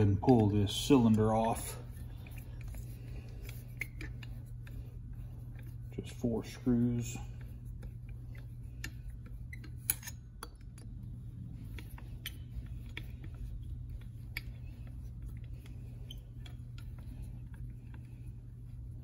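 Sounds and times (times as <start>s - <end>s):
metallic clicks of tool on screws: 0.0s - 2.8s, 7.9s - 11.0s, 11.6s - 14.7s
steady low hum: 0.0s - 19.0s.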